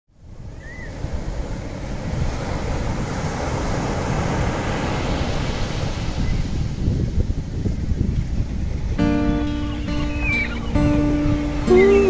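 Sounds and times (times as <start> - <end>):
small waves on sandy beach: 0.2 - 12.0
wind buffeting microphone: 0.2 - 12.0
short high chirp: 9.0 - 12.0.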